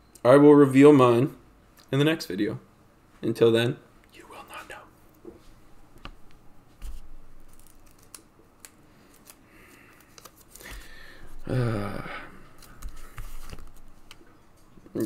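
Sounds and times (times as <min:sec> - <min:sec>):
cards clicking and scraping: 0:06.8 - 0:10.9, 0:12.6 - 0:14.2
low voice-like hum: 0:11.4 - 0:12.5.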